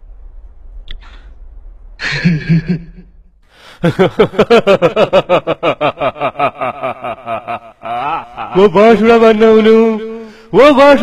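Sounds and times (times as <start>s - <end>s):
man laughing loudly: 2.0s - 3.0s, 3.8s - 9.3s.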